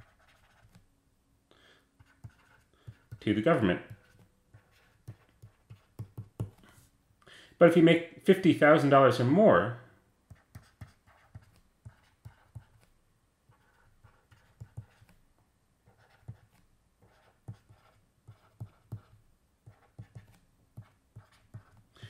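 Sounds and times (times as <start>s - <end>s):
stylus tapping and scratching on screen: 0.0s - 0.9s, 2.0s - 6.9s, 10.2s - 22.0s.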